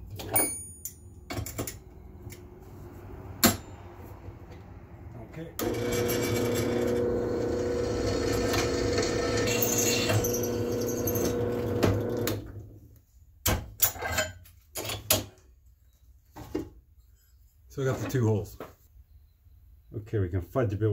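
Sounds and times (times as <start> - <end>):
drill bit cutting steel: 5.6 - 12.2
drill press motor hum: 5.6 - 12.5.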